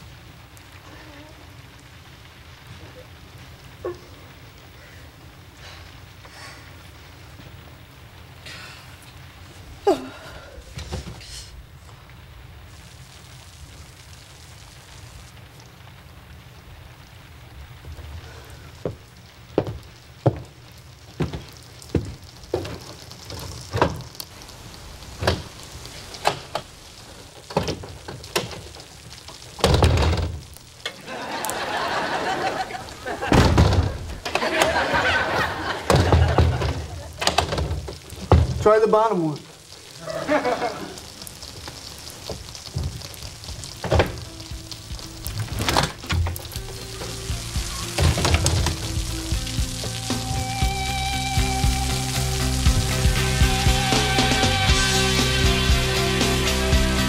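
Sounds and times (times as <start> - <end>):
steady rain: 0.0 - 57.0
glass door and locks rattling: 21.2 - 24.2, 25.1 - 31.0, 32.5 - 38.7, 42.6 - 44.6, 45.3 - 49.1
dull door thuds: 29.6 - 30.4, 33.3 - 34.2, 35.9 - 38.6, 43.8 - 44.3.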